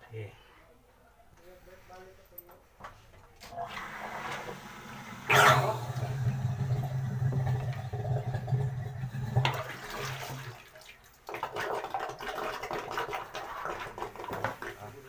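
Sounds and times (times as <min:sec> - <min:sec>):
water running and draining: 0:03.5 - 0:15.0
water sloshing in toilet bowl: 0:03.6 - 0:15.0.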